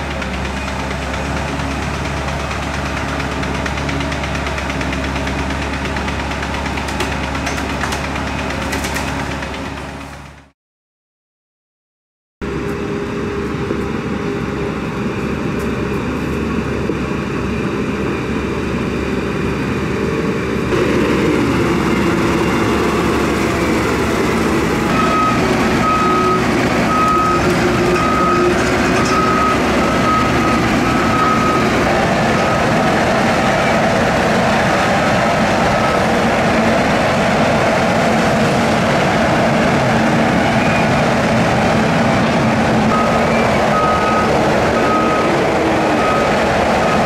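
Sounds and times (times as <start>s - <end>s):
diesel engines running: 0.0s - 10.5s, 12.4s - 47.0s
reversing alarm beeps: 24.9s - 31.7s, 42.9s - 47.0s.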